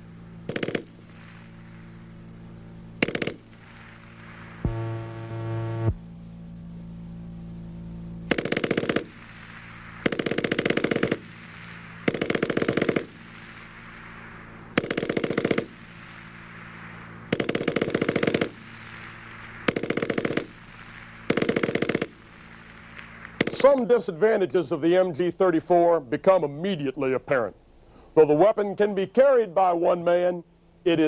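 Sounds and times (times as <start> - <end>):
machine gun firing bursts: 0.4 - 1.9, 3.0 - 4.7, 8.3 - 23.8.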